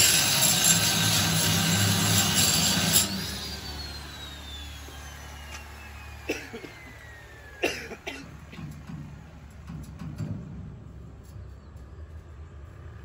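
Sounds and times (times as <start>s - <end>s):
angle grinder grinding steel: 0.0s - 7.6s
grinder disc winding down whine: 0.4s - 7.6s.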